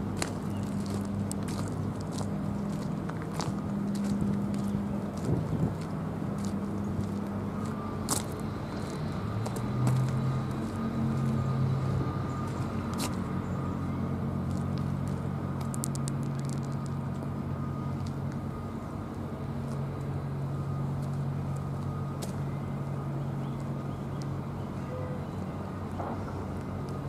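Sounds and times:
traffic noise: 0.0 - 27.0
vehicle engine humming: 0.0 - 27.0.

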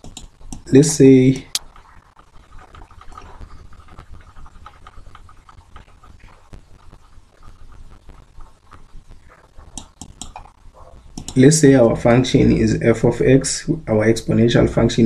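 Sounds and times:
sharp clicks: 0.0 - 0.7, 9.6 - 11.4
stylus scratching on tablet: 0.0 - 12.3
low steady hum: 0.0 - 15.0.

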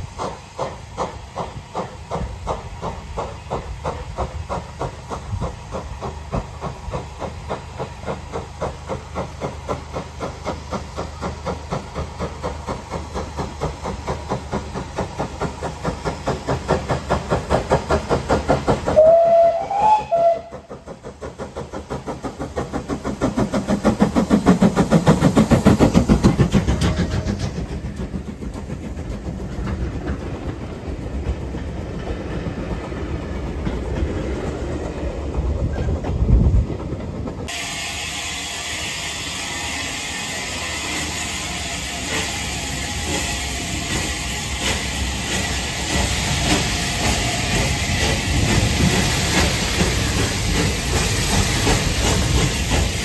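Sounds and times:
steam locomotive chuffing: 0.0 - 53.0
train wheels clattering: 0.0 - 53.0
steam whistle: 19.0 - 20.7, 37.5 - 44.6.

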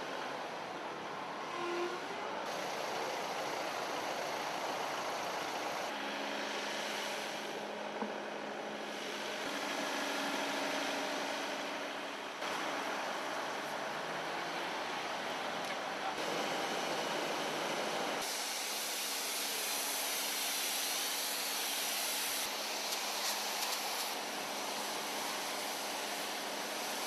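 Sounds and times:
outdoor street noise: 0.0 - 27.0.

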